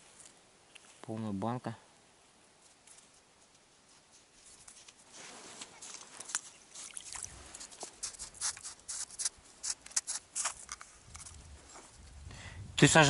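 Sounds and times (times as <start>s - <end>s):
dog paws crunching on snow: 2.6s - 11.9s.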